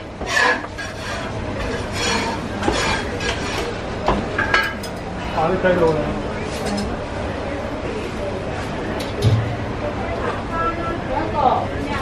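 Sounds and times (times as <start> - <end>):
faint voices: 0.9 - 12.0.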